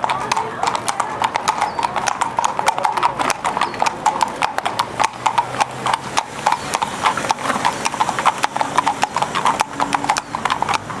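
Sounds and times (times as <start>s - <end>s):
horse hooves on asphalt: 0.0s - 11.0s.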